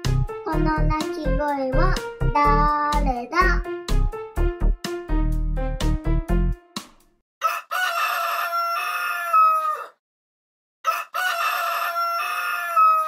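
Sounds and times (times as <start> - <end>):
rooster crowing: 7.4 - 10.0, 10.8 - 13.0.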